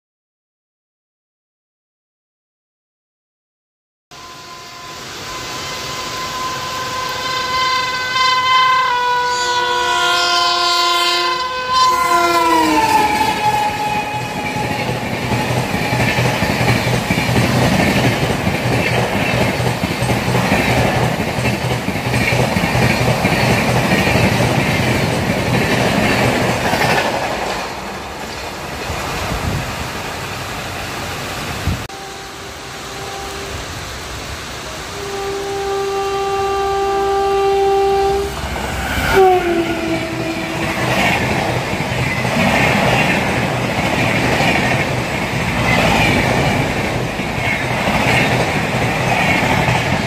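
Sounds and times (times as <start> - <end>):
train horn: 4.1 - 17.2, 31.8 - 41.4
heavy rain hiss: 4.2 - 10.6, 12.4 - 50.0
train wheels clacking on rails: 12.4 - 30.4, 38.4 - 50.0.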